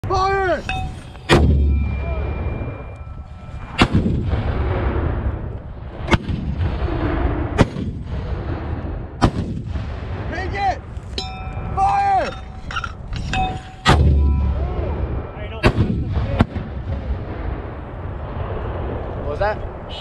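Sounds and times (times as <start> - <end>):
mortars firing: 0.6 - 11.4, 13.2 - 17.8
deep boom: 1.2 - 10.8, 13.8 - 19.3.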